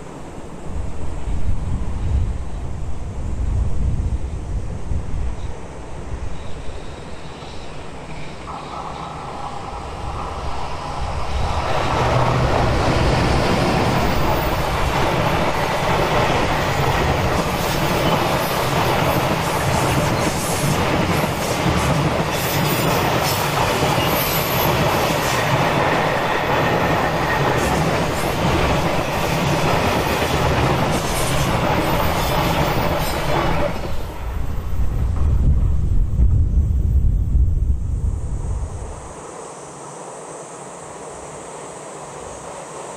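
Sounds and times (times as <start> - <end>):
wheel and rail rumble: 0.0 - 39.3
electric locomotive passing: 0.0 - 42.9
clickety-clack over rail joints: 11.5 - 36.4.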